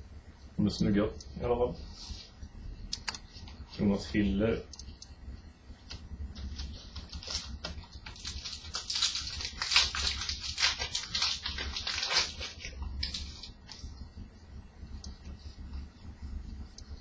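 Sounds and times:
foil wrapper crinkling and tearing: 6.4 - 13.8.

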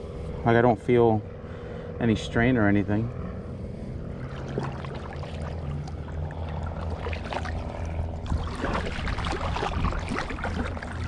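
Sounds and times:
steady low rumble: 0.0 - 11.0
paddle splashing in water: 4.3 - 11.0
water washing along board: 4.3 - 11.0.

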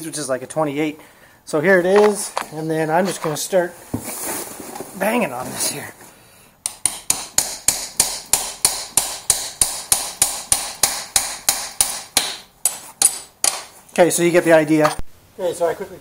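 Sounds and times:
hammer striking metal: 6.6 - 13.8.

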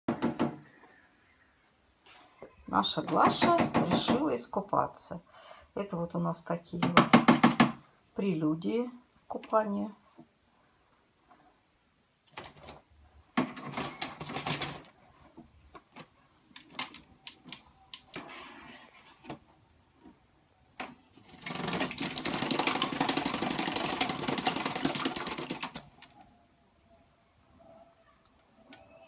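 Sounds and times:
bird splashing in water: 21.2 - 26.0
rapid continuous splashing: 21.2 - 26.0.

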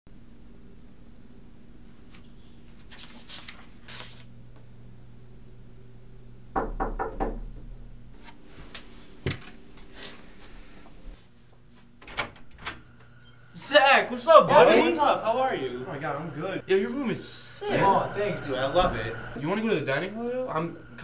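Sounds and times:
book pages rustling: 1.9 - 4.3
knocking on wooden door: 6.6 - 7.7.

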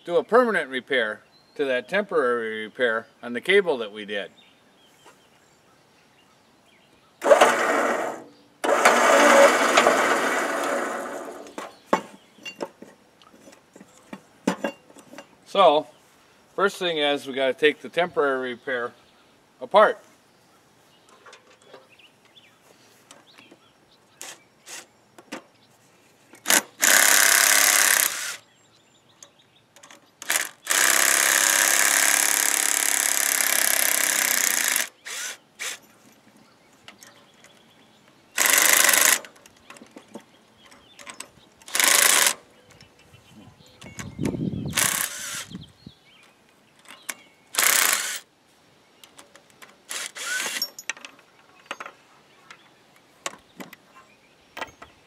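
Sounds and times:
impact wrench bursts: 7.2 - 11.6, 26.4 - 28.4, 30.2 - 35.8, 38.4 - 39.3, 41.7 - 42.4, 44.7 - 45.6, 47.5 - 48.3, 49.9 - 50.8.

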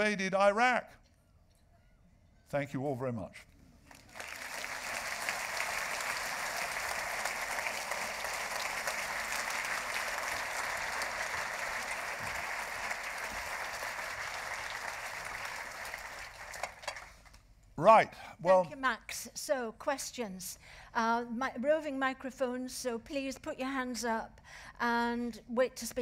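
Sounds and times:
audience applauding: 3.9 - 17.4.

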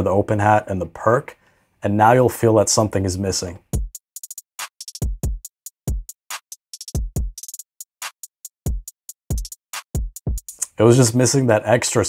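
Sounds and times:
hip-hop drum loop: 3.6 - 10.8.

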